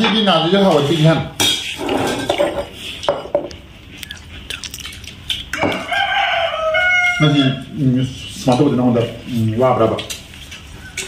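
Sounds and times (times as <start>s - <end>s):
rooster crowing: 5.5s - 7.8s.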